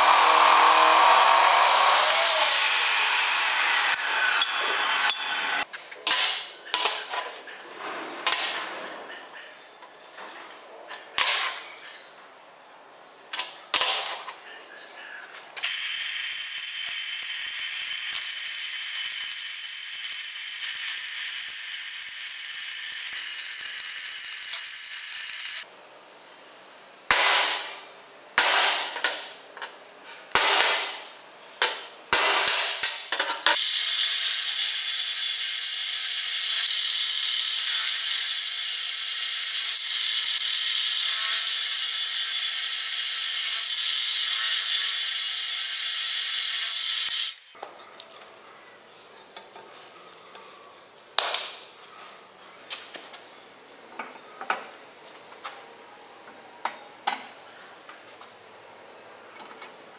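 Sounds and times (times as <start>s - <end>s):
drill press boring steel: 0.0s - 5.6s, 33.6s - 47.5s
hand tool striking welds: 1.6s - 7.2s, 8.2s - 8.7s, 11.2s - 11.7s, 13.4s - 14.3s, 15.6s - 25.6s, 27.1s - 27.8s, 28.4s - 29.4s, 30.3s - 47.4s
arc welding crackling hiss: 15.6s - 25.7s.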